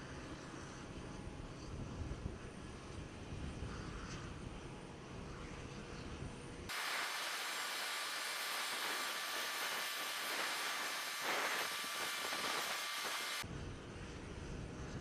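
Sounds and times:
jet turbine hiss with whine: 0:06.7 - 0:13.4.

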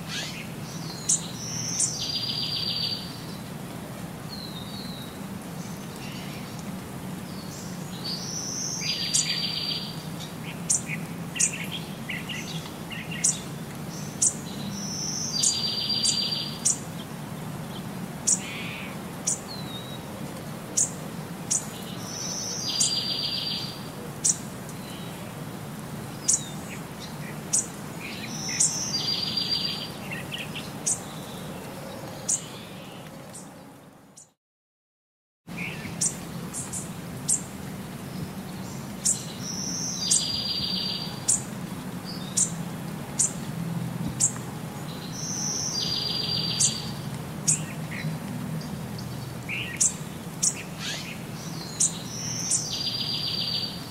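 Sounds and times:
bird chirps: 0:00.1 - 0:03.1.

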